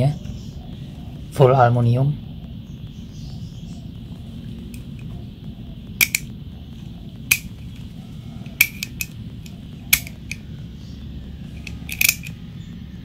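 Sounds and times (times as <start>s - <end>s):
steady low hum: 0.0s - 13.0s
utility knife slider clicks: 6.0s - 6.3s, 8.6s - 9.1s, 9.9s - 10.4s, 11.6s - 12.4s.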